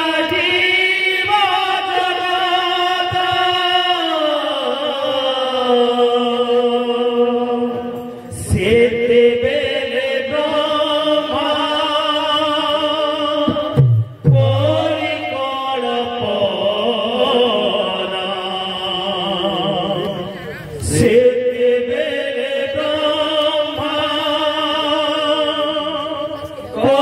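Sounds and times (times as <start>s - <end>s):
devotional chanted singing: 0.0s - 27.0s
musical accompaniment: 13.5s - 15.2s.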